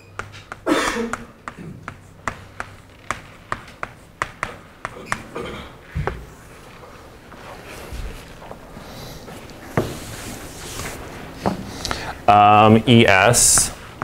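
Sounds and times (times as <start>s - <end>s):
chalk tapping on blackboard: 0.0s - 5.2s, 13.3s - 14.0s.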